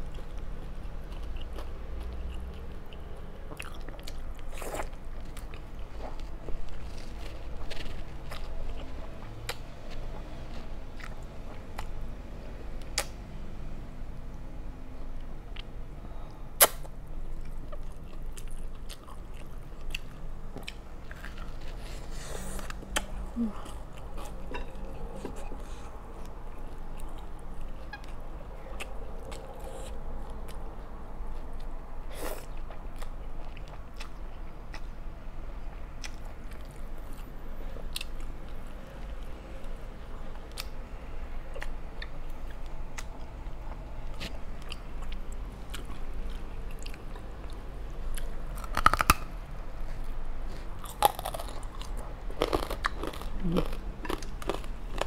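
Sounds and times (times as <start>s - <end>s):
person slurping and chewing noodles: 49.9s - 55.0s.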